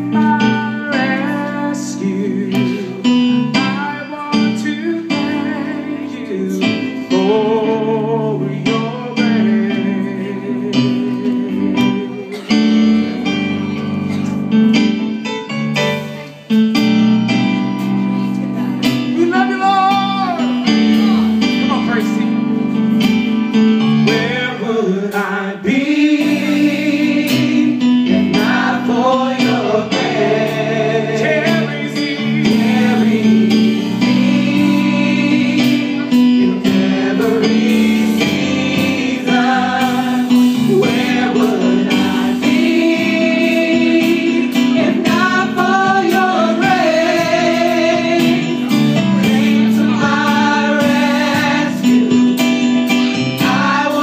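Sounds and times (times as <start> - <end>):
sustained keyboard chords: 0.0 - 54.0
group of women singing gospel: 24.1 - 52.6, 53.3 - 54.0.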